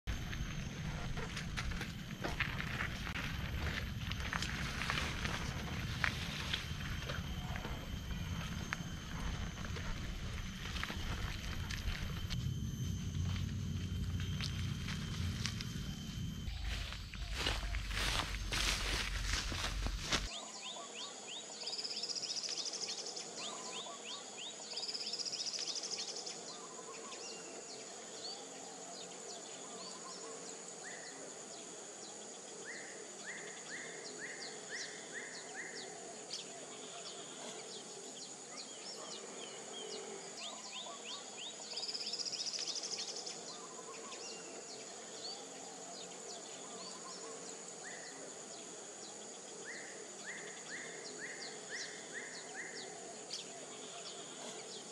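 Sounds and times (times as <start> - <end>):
high insect drone: 0.0 - 54.9
loud rising insect buzzes: 0.1 - 20.3.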